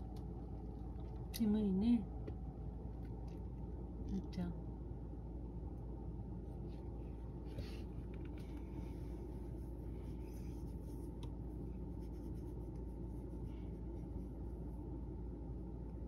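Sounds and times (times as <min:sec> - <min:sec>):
low background hum: 0:00.0 - 0:16.0
hand scratching cat fur: 0:07.5 - 0:15.2.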